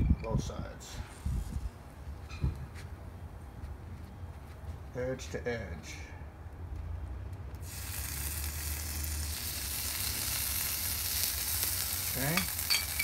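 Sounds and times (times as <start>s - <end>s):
food sizzling on a griddle: 7.6s - 13.0s.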